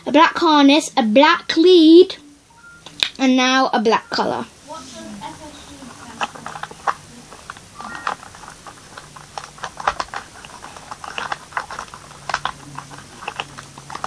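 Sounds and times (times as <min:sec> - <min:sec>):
plastic toys clicking: 0:05.8 - 0:14.0.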